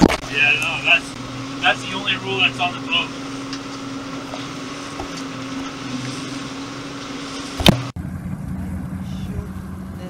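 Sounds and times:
water rushing: 0.0 - 8.0
motorboat engine humming: 0.0 - 10.0
wind: 0.0 - 10.0.

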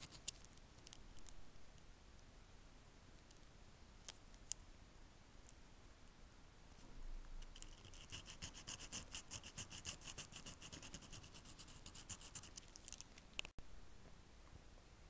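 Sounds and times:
sanding stick scraping pen part: 7.6 - 12.7.

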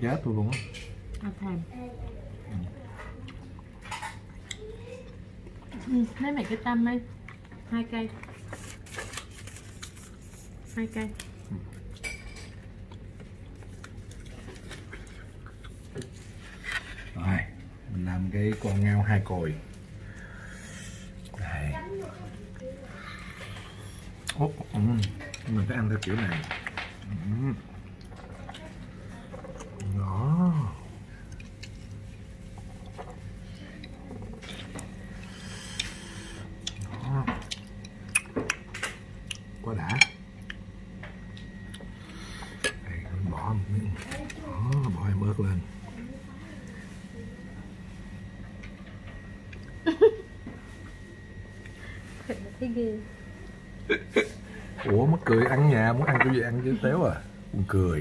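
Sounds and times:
steady low hum: 0.0 - 58.0
dishes and tableware clinking: 12.0 - 12.6.

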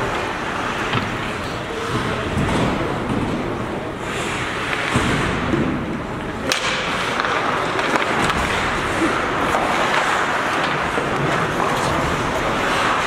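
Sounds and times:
skates scraping ice: 0.0 - 13.0
sharp crack: 6.4 - 11.0.

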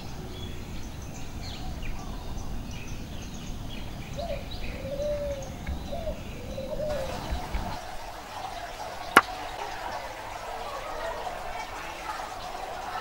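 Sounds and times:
small birds chirping: 0.0 - 10.3.

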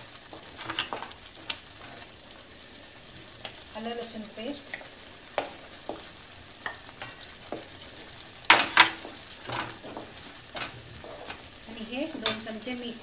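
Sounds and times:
faint sizzle of frying: 0.0 - 13.0
stirring thick paste in a pan: 4.8 - 11.6
wooden spatula scraping a bowl: 9.0 - 11.5.

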